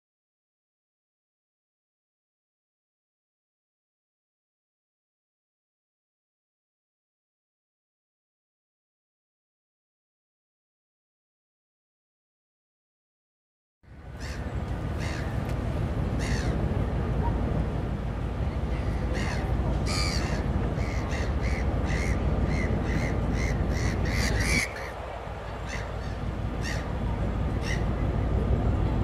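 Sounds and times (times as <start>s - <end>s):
gulls calling: 13.9s - 29.0s
steady low rumble: 13.9s - 29.0s.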